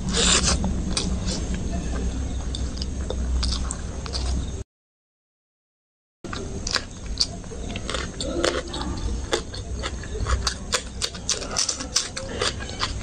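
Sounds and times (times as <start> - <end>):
chewing and mouth smacking: 6.3 - 13.0.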